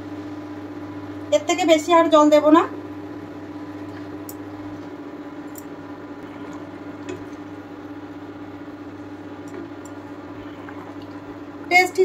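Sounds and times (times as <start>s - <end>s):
steady low hum: 0.0s - 12.0s
curry bubbling in a pan: 6.0s - 11.7s.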